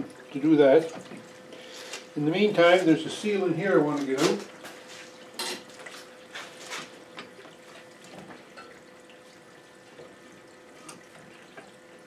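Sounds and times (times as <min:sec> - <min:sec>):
liquid trickling from hose: 0:00.0 - 0:12.0
small pump humming: 0:00.0 - 0:12.0.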